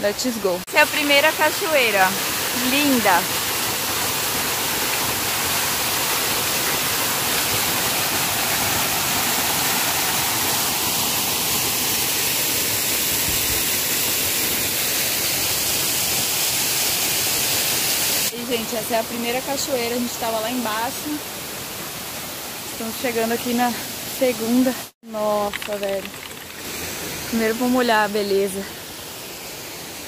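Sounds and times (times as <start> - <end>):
waterfall rushing: 0.7 - 22.5.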